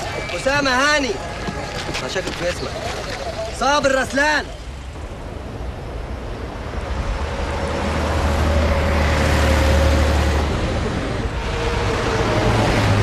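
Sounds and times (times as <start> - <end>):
bus driving past: 6.1 - 13.0.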